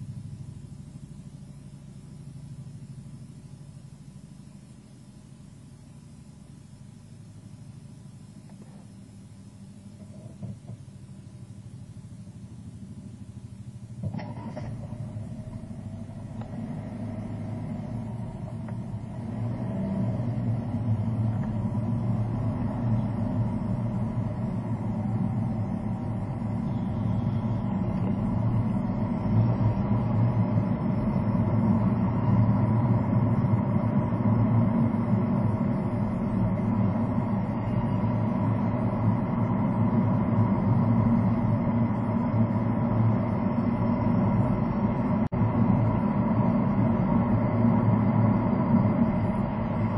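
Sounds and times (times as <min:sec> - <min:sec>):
car engine and tyre rumble: 0:09.9 - 0:11.9, 0:12.8 - 0:49.9.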